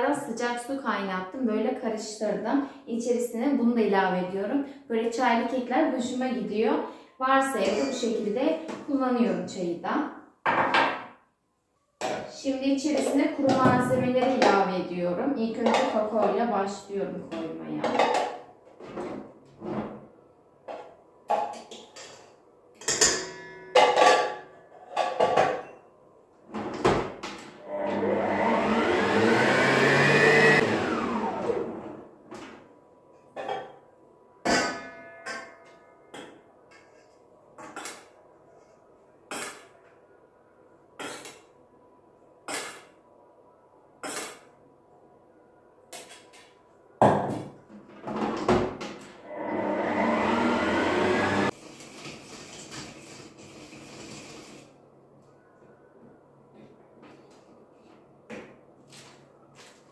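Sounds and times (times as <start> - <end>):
stand mixer motor: 27.7 - 31.8, 49.3 - 51.5.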